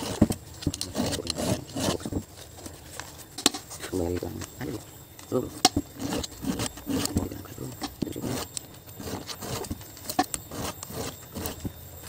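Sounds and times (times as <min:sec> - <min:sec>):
file rasping on chainsaw chain: 0:00.0 - 0:02.2, 0:05.6 - 0:11.8.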